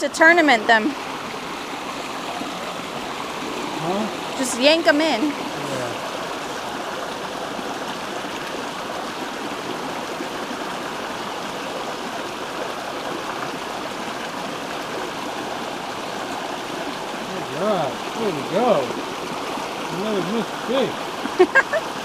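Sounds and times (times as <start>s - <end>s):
stream running over stones: 0.0s - 22.0s.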